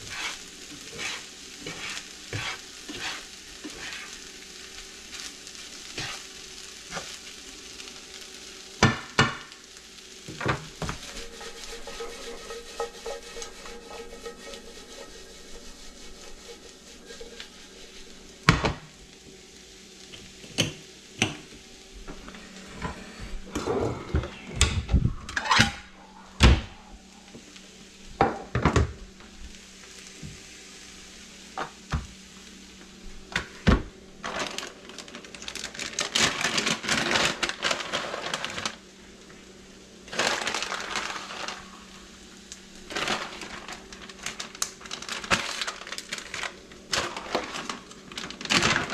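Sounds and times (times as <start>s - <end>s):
plastic bag rustling: 0.0s - 8.4s, 34.1s - 39.2s, 40.0s - 48.9s
low steady hum: 9.6s - 48.9s.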